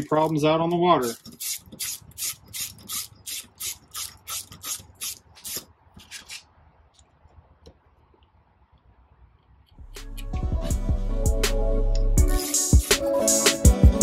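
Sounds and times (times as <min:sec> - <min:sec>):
hand tool rasping: 0:00.0 - 0:06.4.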